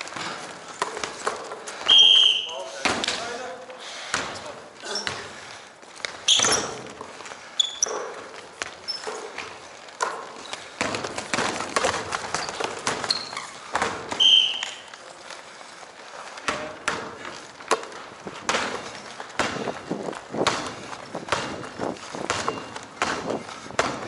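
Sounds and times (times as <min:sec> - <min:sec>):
running footsteps: 0:00.0 - 0:24.0
sneaker squeaks: 0:00.2 - 0:02.8, 0:04.8 - 0:05.4, 0:06.1 - 0:15.0, 0:22.0 - 0:23.6
basketball bouncing on hardwood: 0:07.8 - 0:14.4, 0:16.4 - 0:24.0.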